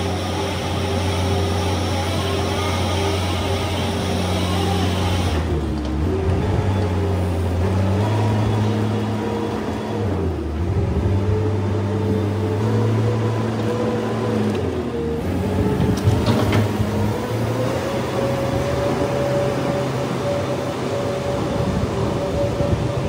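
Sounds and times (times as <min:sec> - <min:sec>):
diesel engine running: 0:00.0 - 0:23.0.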